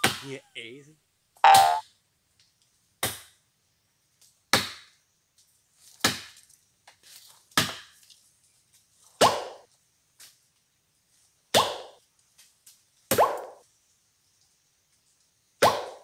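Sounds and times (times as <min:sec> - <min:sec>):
blade chopping into wood: 0:04.5 - 0:04.9, 0:06.0 - 0:06.4, 0:07.6 - 0:08.0.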